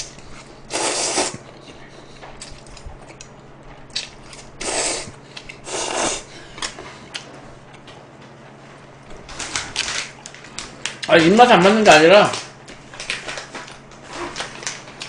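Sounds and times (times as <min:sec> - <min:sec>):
person slurping noodles: 0:00.7 - 0:01.4, 0:04.6 - 0:06.3
chewing with wet clicks: 0:01.5 - 0:04.5.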